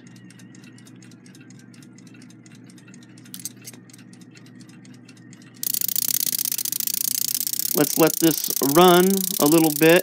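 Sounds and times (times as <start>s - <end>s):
clock ticking: 0.0s - 10.0s
alarm clock bell rattling: 5.6s - 10.0s.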